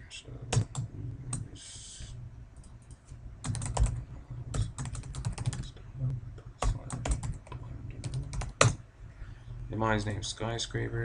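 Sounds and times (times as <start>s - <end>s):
typing on computer keyboard: 3.4s - 4.0s, 4.6s - 5.7s, 6.6s - 8.8s.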